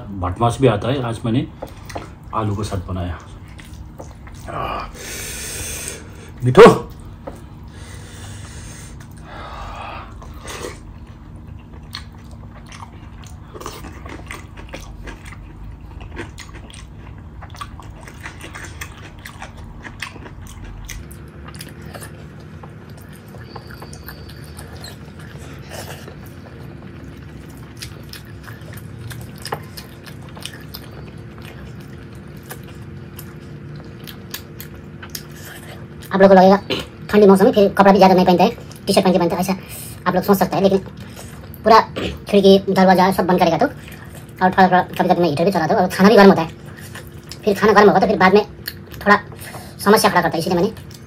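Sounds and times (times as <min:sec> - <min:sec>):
person chewing food: 0:01.5 - 0:37.1, 0:38.5 - 0:42.3, 0:43.4 - 0:45.0, 0:46.0 - 0:51.0
wet eating clicks and smacks: 0:11.0 - 0:35.4, 0:48.6 - 0:49.2, 0:50.6 - 0:51.0.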